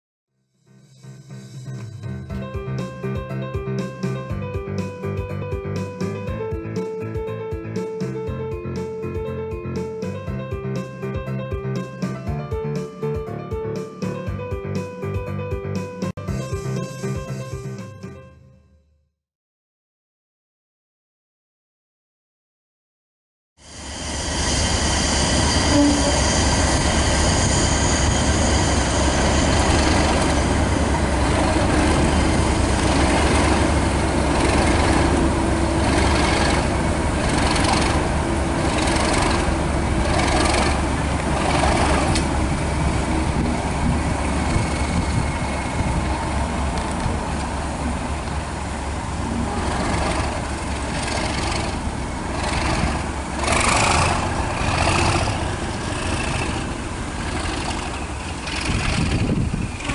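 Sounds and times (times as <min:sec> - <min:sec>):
diesel locomotive engine humming: 0:23.6 - 0:59.9.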